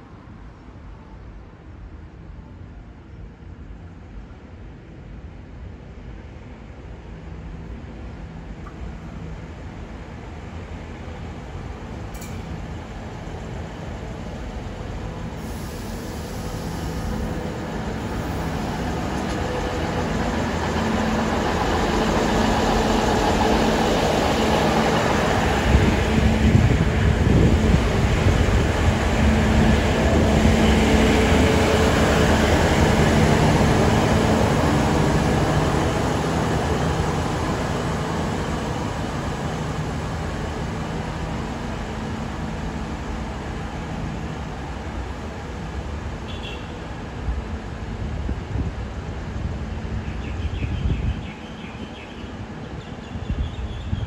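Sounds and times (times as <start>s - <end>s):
train engine hum and wheel noise: 0.0s - 54.0s.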